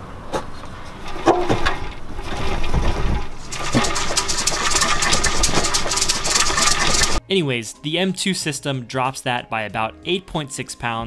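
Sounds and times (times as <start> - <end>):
rust flakes rattling in muffler: 0.6 - 7.2.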